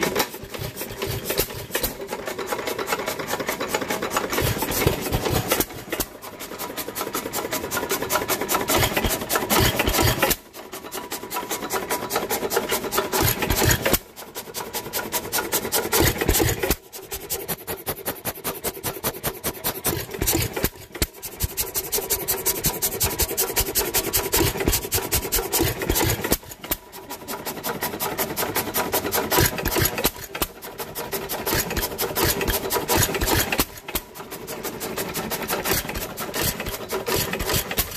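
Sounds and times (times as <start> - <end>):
engine mechanical clatter: 0.0 - 37.9.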